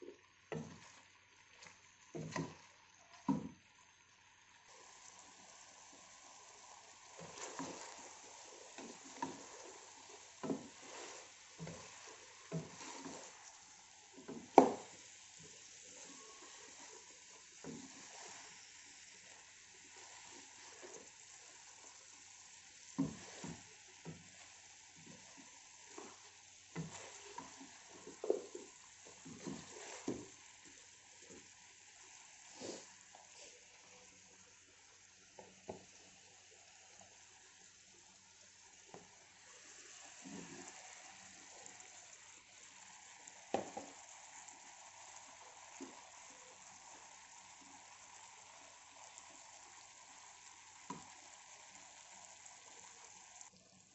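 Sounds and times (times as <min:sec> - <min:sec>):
faint steady hiss: 0:00.0 - 0:53.9
wooden spoon scraping a metal pot: 0:07.2 - 0:13.7, 0:22.9 - 0:30.4.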